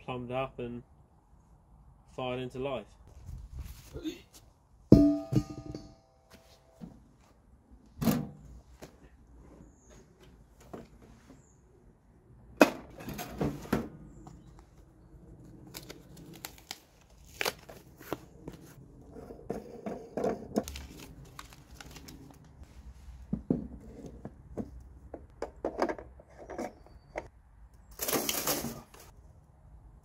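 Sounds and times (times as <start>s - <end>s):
packaging crinkling and tearing: 15.5s - 18.2s, 20.6s - 22.6s.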